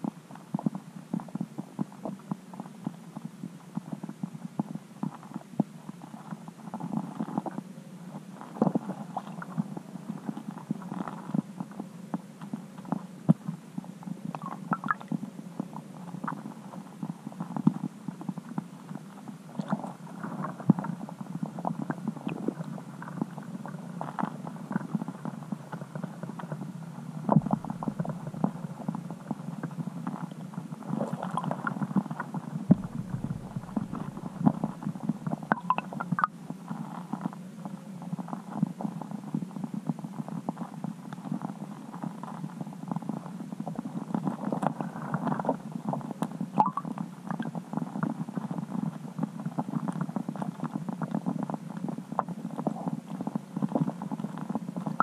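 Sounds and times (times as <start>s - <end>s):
small underwater clicks and knocks: 14.3s - 15.2s, 27.2s - 36.3s, 44.0s - 55.0s
muffled underwater rumble: 19.3s - 40.6s.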